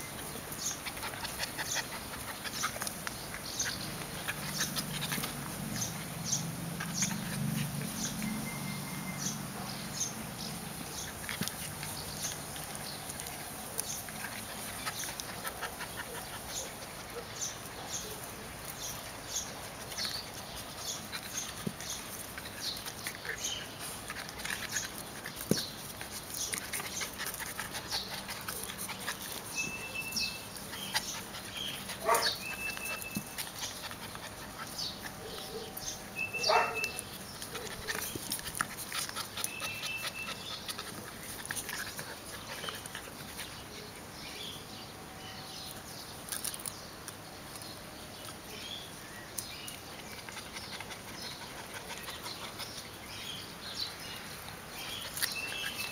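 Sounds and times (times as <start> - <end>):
puppies vocalising: 0.0 - 45.7, 47.5 - 55.9
puppies scuffling: 0.0 - 55.9
dog yelps: 32.0 - 33.0, 36.3 - 37.0.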